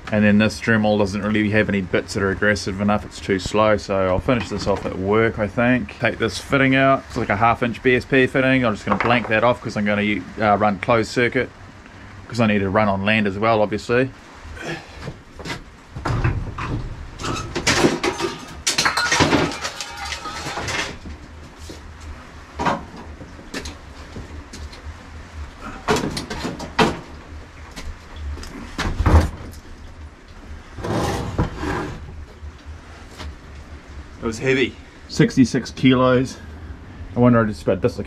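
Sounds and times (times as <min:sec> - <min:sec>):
motorcycle engine clanking and scraping: 0:14.9 - 0:21.9, 0:30.7 - 0:32.3.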